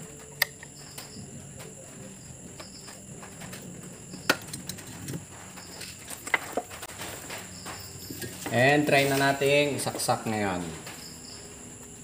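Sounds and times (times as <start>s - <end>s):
steady high-pitched whine: 0.0s - 12.0s.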